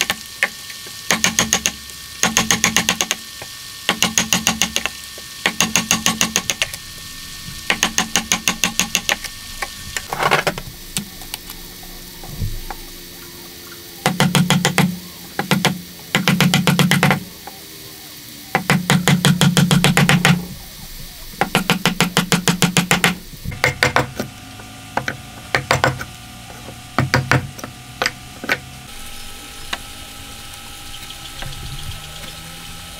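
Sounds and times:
hammer striking chisel into wood: 1.1 - 3.2, 3.9 - 6.7, 7.7 - 9.2, 14.0 - 17.2, 18.5 - 20.4, 21.4 - 24.2, 25.0 - 26.1, 27.0 - 28.6.

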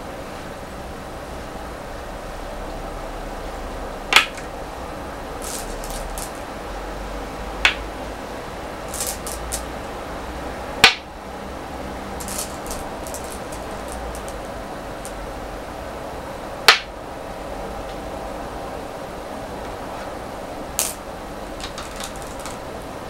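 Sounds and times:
game stones clacking on wooden board: 5.4 - 6.4, 8.9 - 9.7, 10.8 - 11.0, 12.2 - 15.2, 16.7 - 16.9, 20.8 - 21.0, 21.6 - 22.6
stones clinking in bowl: 5.4 - 6.4, 8.9 - 9.7, 12.2 - 15.2, 20.8 - 21.0, 21.6 - 22.6.

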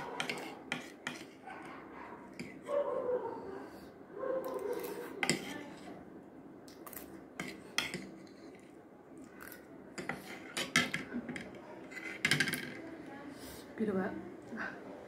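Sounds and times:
cutlery scraping and clinking on plate: 0.0 - 1.4, 4.5 - 6.0, 7.4 - 8.7, 9.4 - 12.8.

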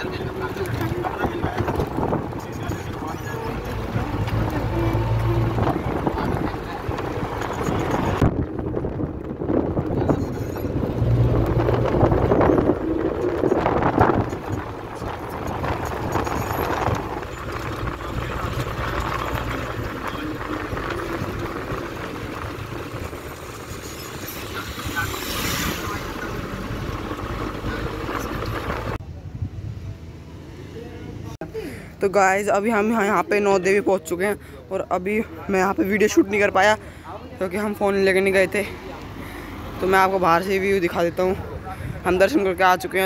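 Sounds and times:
tyre and wind noise: 0.0 - 30.2
vehicle engine hum: 0.0 - 43.0.

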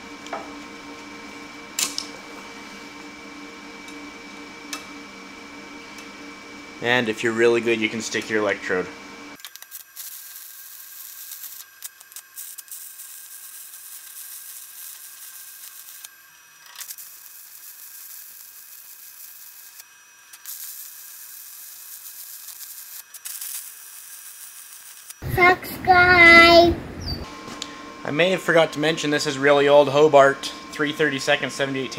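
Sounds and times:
welding arc crackling hiss: 9.4 - 26.4.

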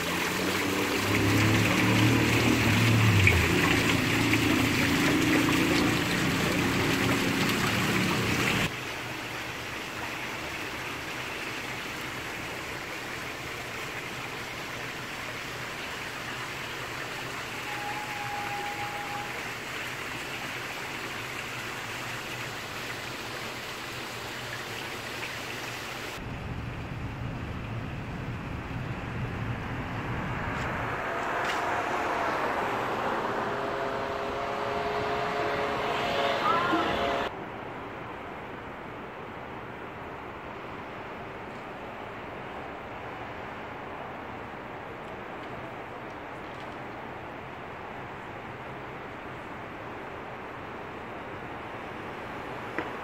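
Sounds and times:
outdoor hiss: 0.0 - 26.2
waterfall splashing into pool: 0.0 - 26.3, 51.9 - 53.0.

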